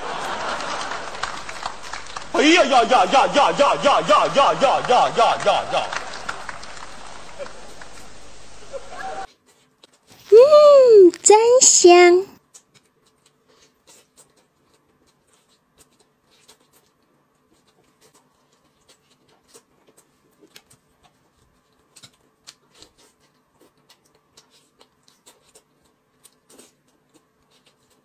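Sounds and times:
person chewing chicken: 12.4 - 28.0.

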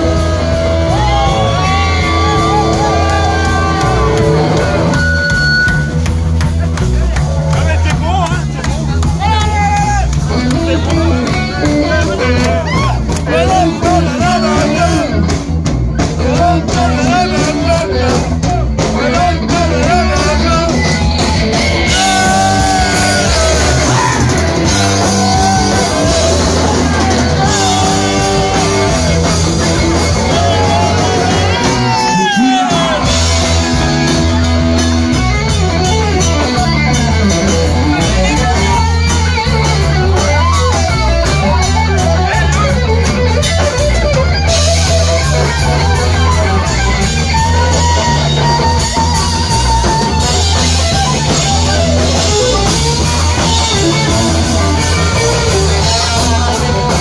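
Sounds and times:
live rock band playing: 0.0 - 57.0
person singing: 10.4 - 15.3, 16.0 - 34.6, 46.2 - 57.0.

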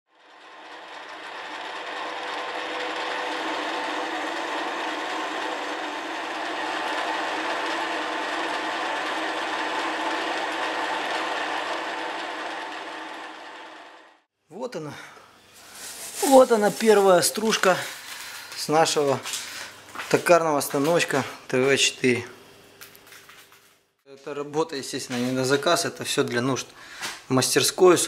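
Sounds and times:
lathe motor whirring: 0.1 - 14.3.

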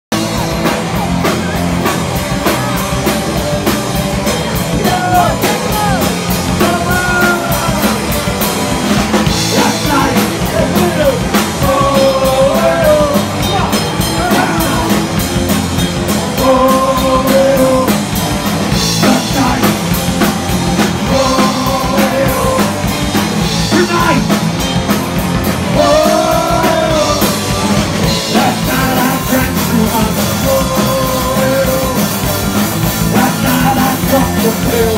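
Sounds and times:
bass guitar: 0.0 - 34.9
drum kit: 0.1 - 34.9
electric guitar: 0.1 - 34.9
man singing: 4.5 - 15.4, 16.0 - 18.1, 18.8 - 23.0, 23.6 - 24.4, 25.6 - 34.9.

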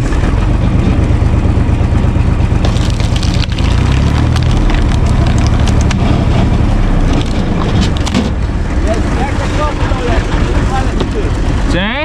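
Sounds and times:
tractor diesel engine running: 0.0 - 12.0
wood cracking and splintering: 2.6 - 8.4.

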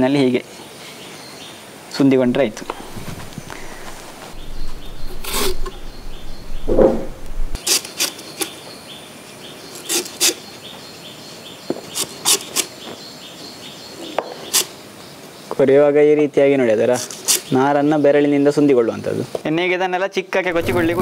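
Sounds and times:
knife cutting banana stem: 7.6 - 8.5, 9.8 - 10.4.

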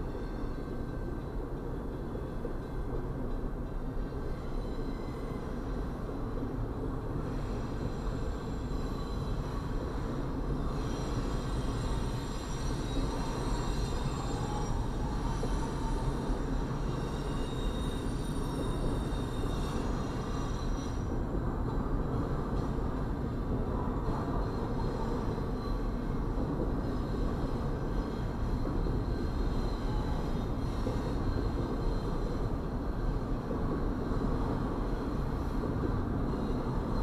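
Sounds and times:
faint high-pitched ringing tones: 0.0 - 22.8
freight train wheels rumbling on rail: 0.0 - 37.0.

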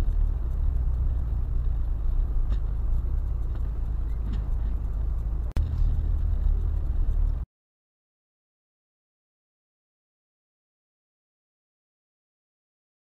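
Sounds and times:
car road rumble: 0.0 - 7.5.

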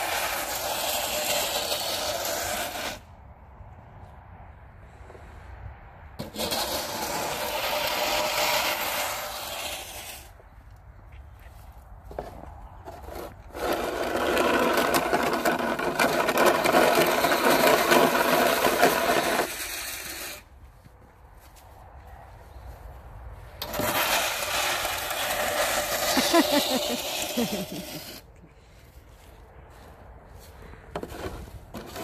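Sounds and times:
snow shovel scraping asphalt: 0.0 - 3.1, 6.2 - 10.5, 12.1 - 20.9, 23.5 - 28.8, 29.7 - 32.0.

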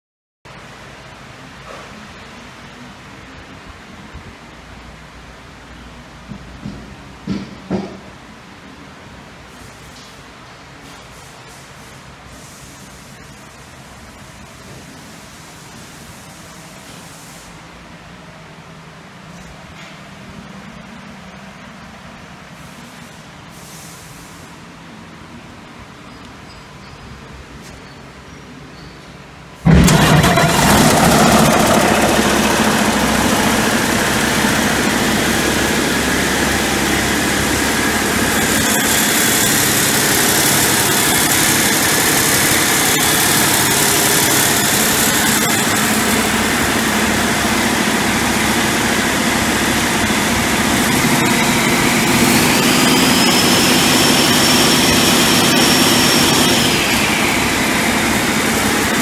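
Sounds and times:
diesel engine idling and revving: 29.6 - 59.0
high whine: 29.7 - 59.0.

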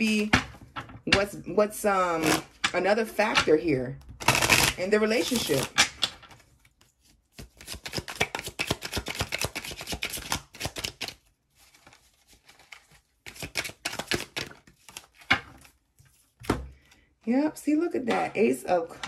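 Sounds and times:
cards being shuffled: 4.2 - 17.0.

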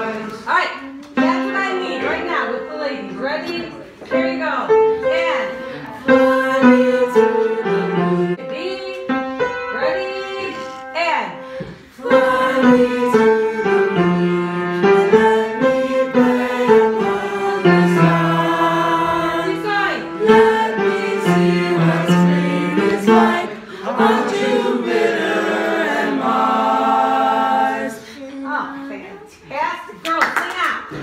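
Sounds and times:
choir singing in harmony: 5.4 - 8.4, 11.6 - 28.2.

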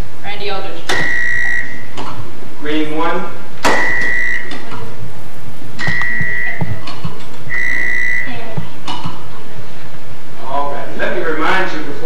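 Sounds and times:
high electronic buzzer beeps: 0.9 - 1.9, 3.7 - 4.5, 5.8 - 6.8, 7.5 - 8.6.

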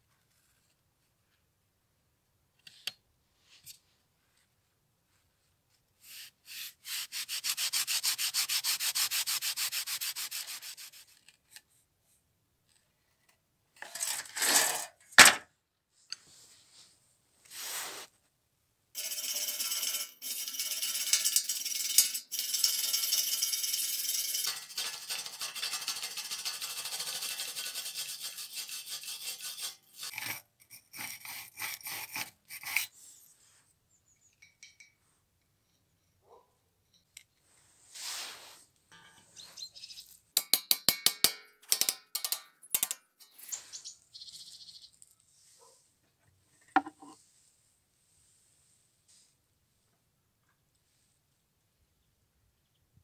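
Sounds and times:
wire brush scrubbing metal: 6.0 - 11.2, 19.0 - 33.0
file scraping on steel: 6.0 - 11.4, 19.0 - 33.0, 46.8 - 47.2.

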